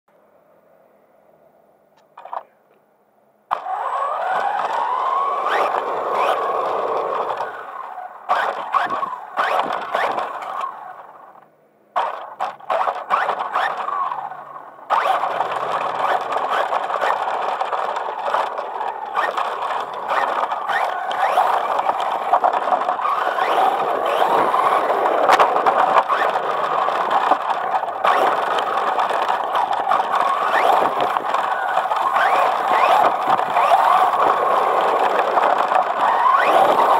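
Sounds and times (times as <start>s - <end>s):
tyres on rough asphalt and gravel: 0.1s - 36.9s
rc truck electric motor whining: 3.5s - 36.9s.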